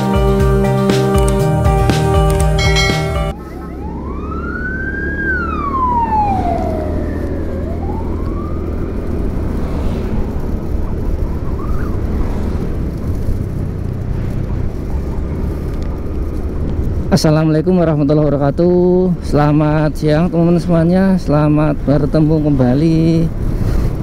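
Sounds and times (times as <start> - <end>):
siren wailing: 2.6 - 9.6, 10.2 - 12.5
motorcycle wind and road rumble: 3.4 - 24.0.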